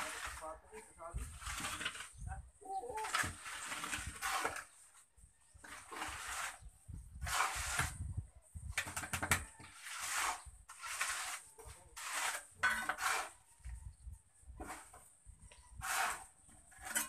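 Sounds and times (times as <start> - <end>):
trowel scraping wet cement: 0.0 - 2.3, 3.0 - 5.0, 5.6 - 8.1, 8.8 - 13.4, 14.6 - 15.1, 15.7 - 17.0.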